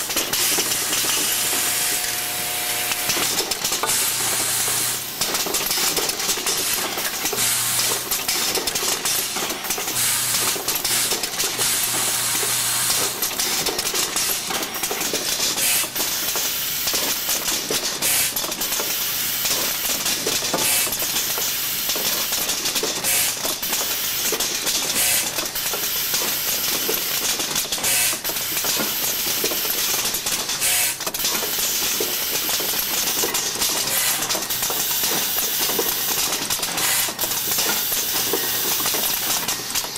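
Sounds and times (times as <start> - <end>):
rapid clicking and clattering: 0.0 - 1.6, 2.9 - 39.9.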